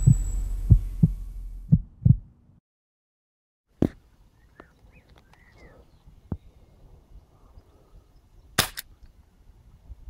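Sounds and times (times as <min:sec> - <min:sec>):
deep boom: 0:00.0 - 0:02.3
deep heartbeat-like thumps: 0:00.0 - 0:02.4
sharp crack: 0:08.6 - 0:08.9.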